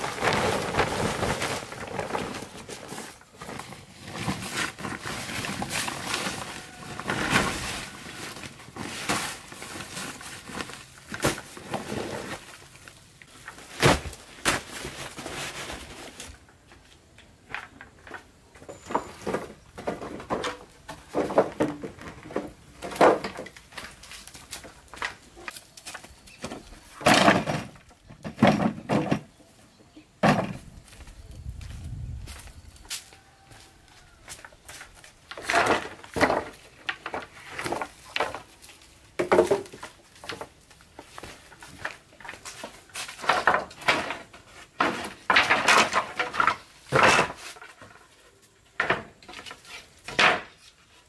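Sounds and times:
plastic tarp rustling: 0:00.0 - 0:16.5
wooden poles and planks clattering: 0:00.0 - 0:31.1, 0:34.2 - 0:51.0.

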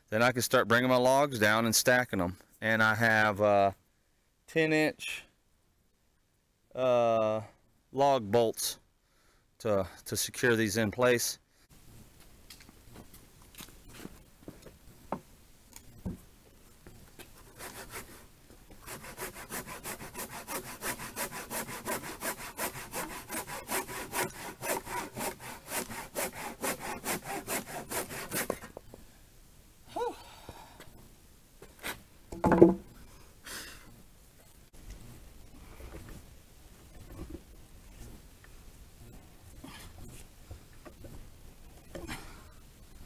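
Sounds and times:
hand saw cutting wood: 0:17.4 - 0:28.8.

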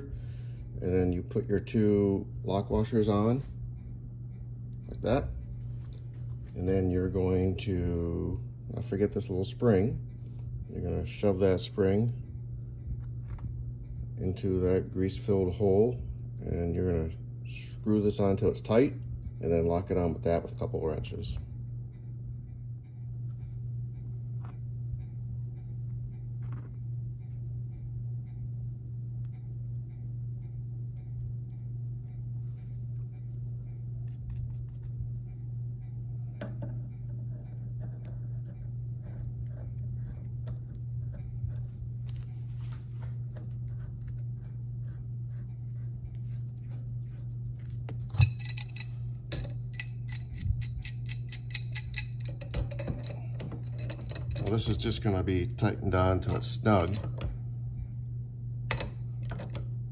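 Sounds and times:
steady low hum: 0:00.0 - 0:59.9
metallic clinks of tools: 0:48.1 - 0:54.9.

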